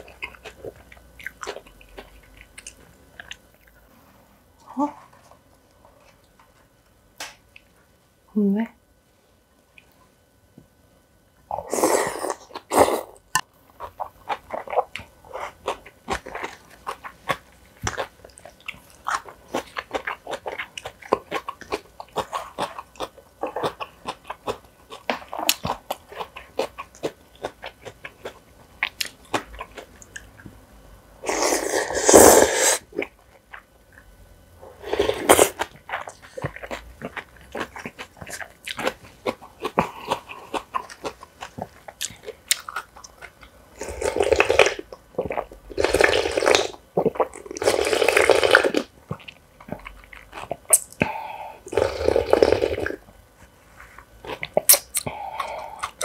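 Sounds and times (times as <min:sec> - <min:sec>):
chewing with mouth clicks: 0:00.0 - 0:03.8, 0:12.4 - 0:30.6, 0:35.2 - 0:53.0, 0:53.8 - 0:56.0
loud slurps: 0:31.2 - 0:32.8.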